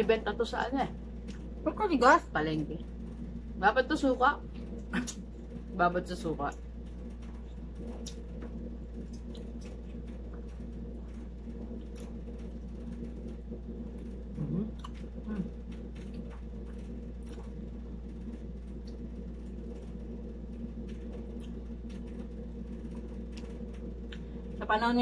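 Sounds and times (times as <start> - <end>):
air conditioner hum: 0.0 - 25.0
chewing: 14.3 - 17.6.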